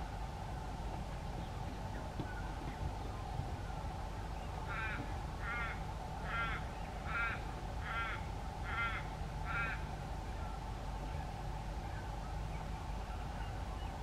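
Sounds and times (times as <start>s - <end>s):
crow cawing: 4.7s - 9.9s.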